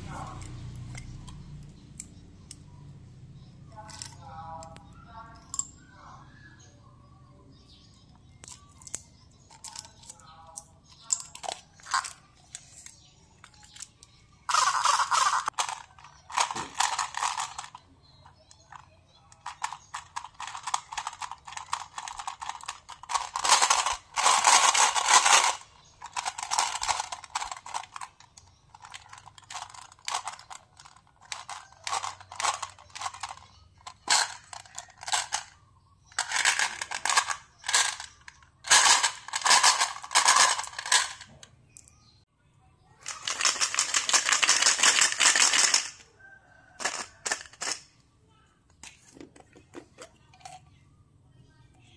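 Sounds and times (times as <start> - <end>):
candies rattling in plastic globe: 8.4 - 10.2, 10.9 - 41.4, 43.0 - 47.9.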